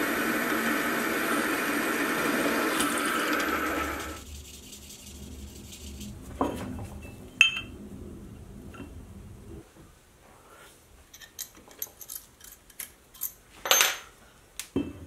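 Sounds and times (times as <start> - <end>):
drill press running: 0.0 - 4.2
metal parts clinking on wood: 11.1 - 14.0.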